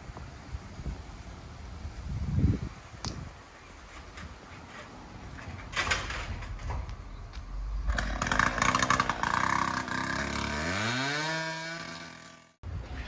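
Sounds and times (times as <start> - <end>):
clattering and knocking: 4.0 - 6.9
heavy machine engine revving: 7.6 - 12.3.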